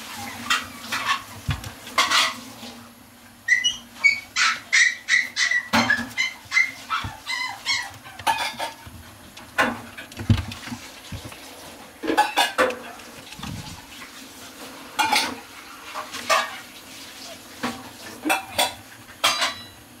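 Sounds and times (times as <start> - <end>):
puppy yipping: 3.5 - 8.7
clicks taps and rustles: 5.7 - 14.1.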